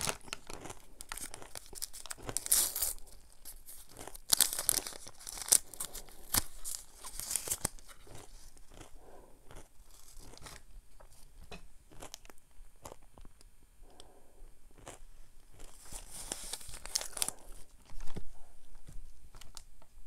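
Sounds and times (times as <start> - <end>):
paper wrapper tearing and crinkling: 0.0 - 8.6, 15.7 - 18.2
paper rustling: 1.2 - 8.5, 15.8 - 18.2.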